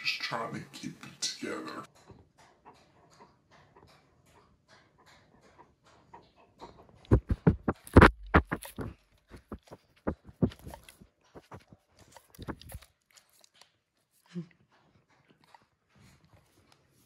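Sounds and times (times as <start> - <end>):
dog sniffing: 2.4 - 17.0
fur rubbing on microphone: 7.1 - 11.8.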